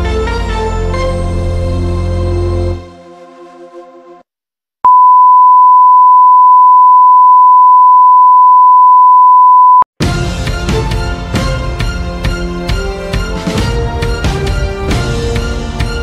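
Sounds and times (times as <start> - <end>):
steady test tone beep: 4.9 - 9.9.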